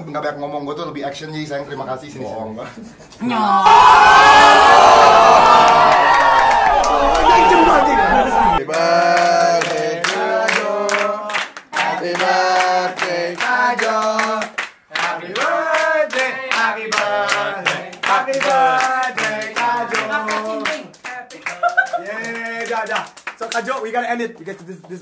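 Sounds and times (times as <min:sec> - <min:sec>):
group of people singing: 0:07.2 - 0:20.9
hand clapping in time: 0:08.6 - 0:25.0.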